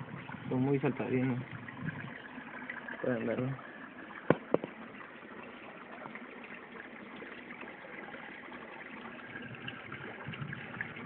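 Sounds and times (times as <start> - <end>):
running water hiss: 0.0 - 11.0
sharp knocks: 4.2 - 4.8.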